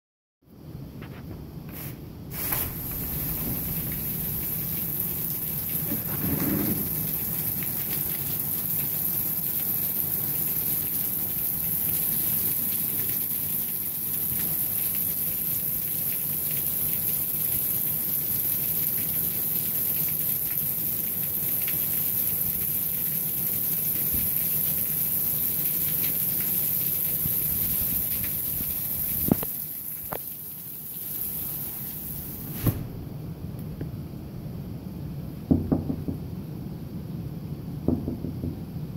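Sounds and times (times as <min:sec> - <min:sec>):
rain falling on concrete: 0:01.7 - 0:32.6
sharp knock: 0:32.6 - 0:33.0.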